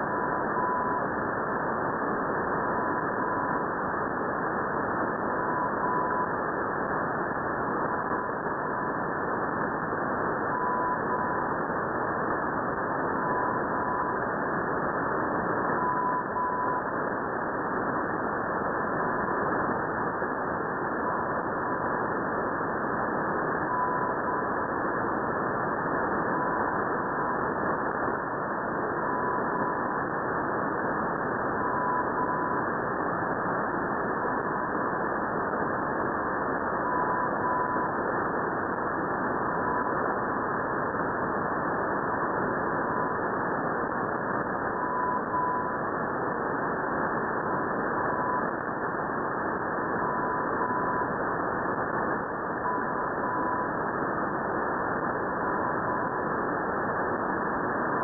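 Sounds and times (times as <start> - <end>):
faint morse code tone: 0.0 - 1.2, 10.4 - 11.6, 15.6 - 17.0, 23.6 - 25.0, 31.4 - 32.7, 36.7 - 38.0, 44.5 - 45.8, 47.5 - 49.1, 49.8 - 51.2, 52.1 - 54.4
shortwave radio hiss: 0.0 - 58.0.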